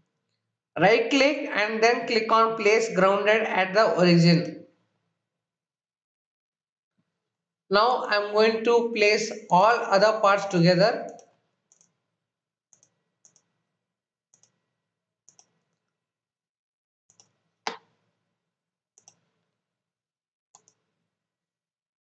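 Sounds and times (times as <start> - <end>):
computer mouse clicks: 11.1 - 12.0, 12.7 - 13.6, 14.3 - 14.6, 15.3 - 15.8, 17.1 - 18.0, 19.0 - 19.4, 20.6 - 20.9.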